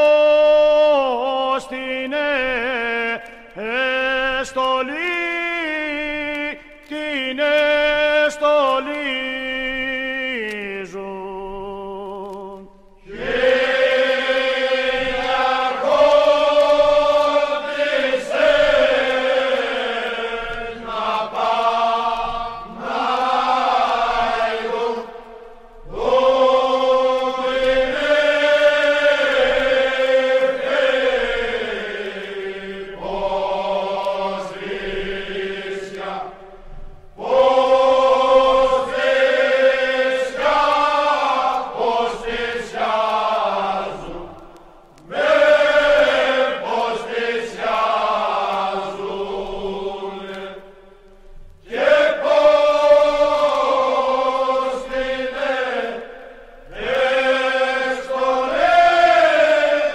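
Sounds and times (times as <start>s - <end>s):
men singing unaccompanied: 0.0s - 36.6s, 37.2s - 50.9s, 51.6s - 59.9s.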